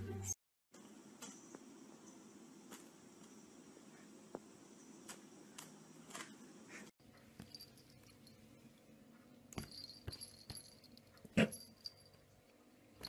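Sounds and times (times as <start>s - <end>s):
high jingling: 7.4s - 8.4s, 9.6s - 12.3s.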